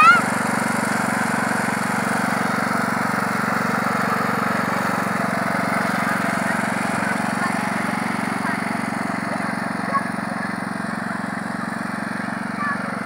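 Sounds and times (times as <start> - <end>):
ride-on mower engine running: 0.0 - 13.0.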